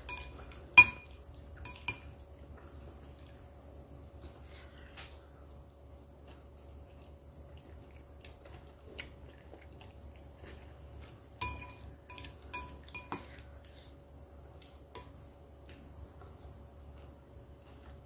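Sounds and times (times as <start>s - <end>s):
spoon and chopsticks clinking bowl: 0.0s - 2.2s, 11.4s - 13.4s.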